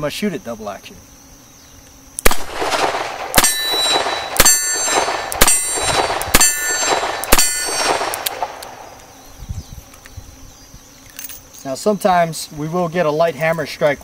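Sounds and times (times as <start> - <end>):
ringing gunshot echo: 2.2 - 8.8
revolver shots: 2.3 - 9.0.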